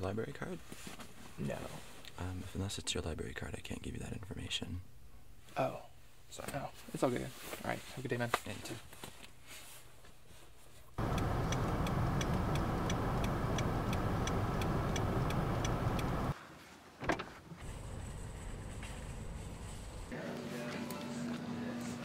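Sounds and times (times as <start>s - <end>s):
turn signal clicking: 11.0s - 16.3s
car engine and road noise: 11.0s - 16.4s, 17.6s - 20.1s.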